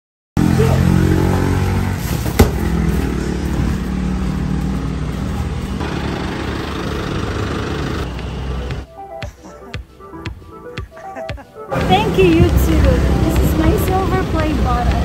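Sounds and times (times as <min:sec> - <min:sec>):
vehicle engine running: 0:00.4 - 0:08.9, 0:11.7 - 0:15.0.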